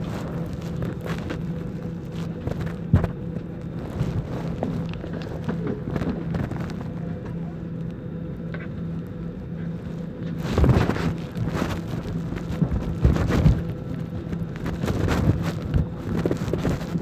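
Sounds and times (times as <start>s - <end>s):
rustling on phone microphone: 0.0s - 7.9s, 9.6s - 17.0s
airliner cabin hum: 0.0s - 17.0s.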